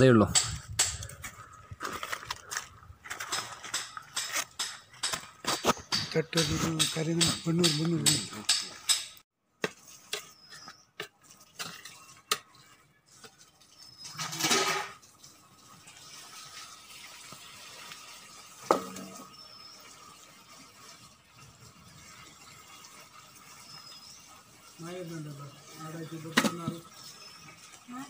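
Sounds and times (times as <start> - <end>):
metal ladle scraping metal pot: 9.6 - 15.0.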